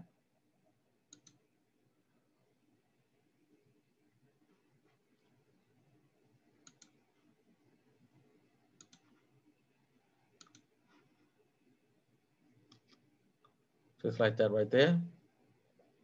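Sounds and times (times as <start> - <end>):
computer mouse clicks: 1.1 - 1.4, 6.6 - 7.0, 8.8 - 9.2, 10.3 - 10.7, 12.7 - 13.6.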